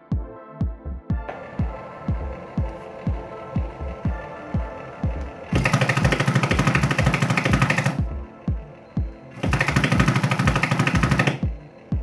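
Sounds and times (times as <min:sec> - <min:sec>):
background music with kick drum: 0:00.0 - 0:12.0
jackhammer rattling: 0:05.5 - 0:08.1, 0:09.4 - 0:11.5.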